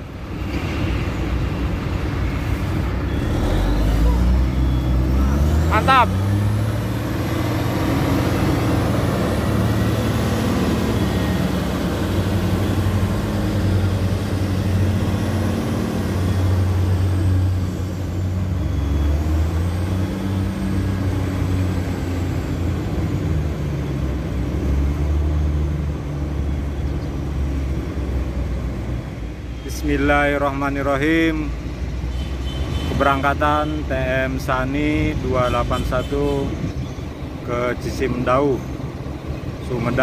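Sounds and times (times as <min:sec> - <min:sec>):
diesel truck engine running: 0:00.0 - 0:40.0.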